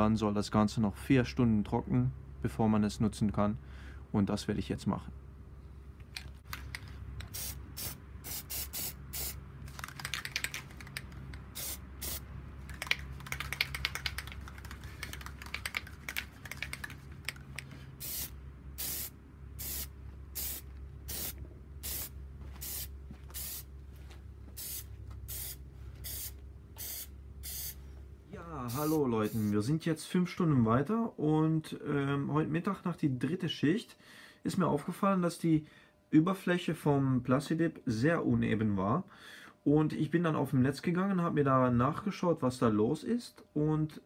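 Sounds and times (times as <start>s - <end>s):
aerosol spray hissing bursts: 7.3s - 9.4s, 11.5s - 12.3s, 18.0s - 23.7s, 24.6s - 27.8s, 28.7s - 29.6s.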